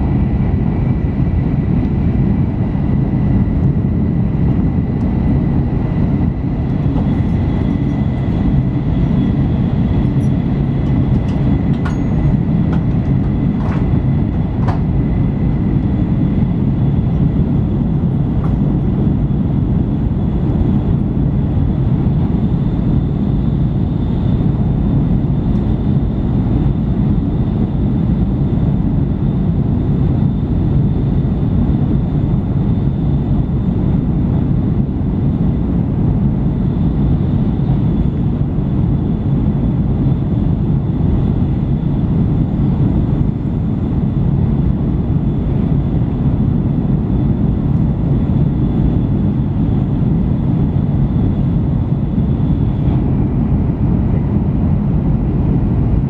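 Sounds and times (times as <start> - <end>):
train cabin low rumble: 0.0 - 22.4.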